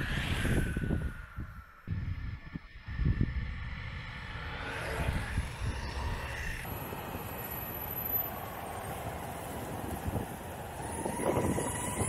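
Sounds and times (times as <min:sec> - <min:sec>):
wind rushing over microphone: 0:00.0 - 0:07.5, 0:08.4 - 0:12.0
skateboard wheels rumbling on asphalt: 0:02.6 - 0:12.0.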